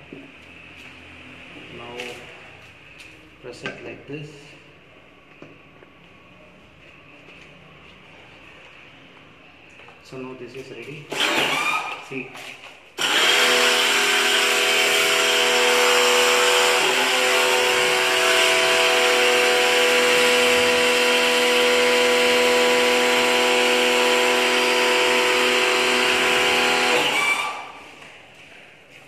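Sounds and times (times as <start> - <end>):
pressure washer humming: 13.0 - 27.9.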